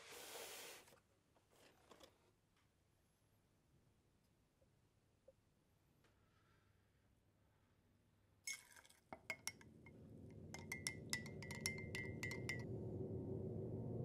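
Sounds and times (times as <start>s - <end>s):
spoon clinking in glass mug: 8.5s - 9.7s, 10.5s - 12.6s
low music drone: 9.5s - 14.0s.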